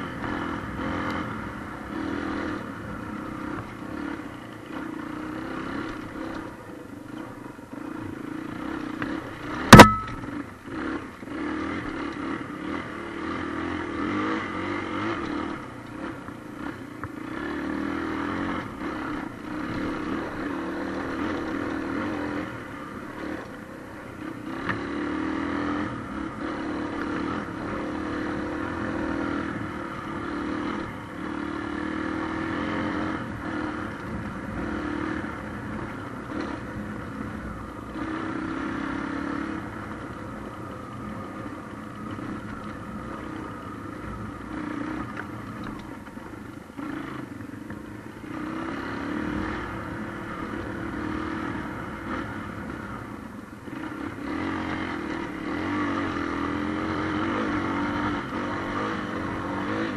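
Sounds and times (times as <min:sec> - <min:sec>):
motorcycle engine running: 0:00.0 - 0:59.9
sharp loud knock: 0:09.7 - 0:10.3.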